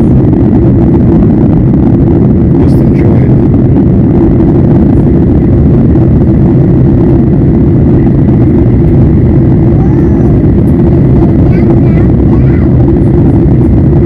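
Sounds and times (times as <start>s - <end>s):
jet engine drone in cabin: 0.0s - 14.0s.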